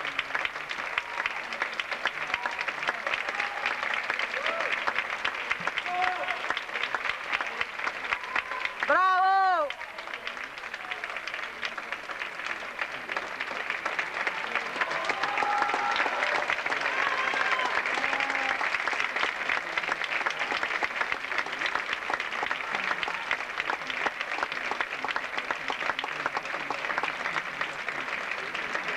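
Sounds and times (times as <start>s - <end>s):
audience clapping: 0.0s - 28.9s.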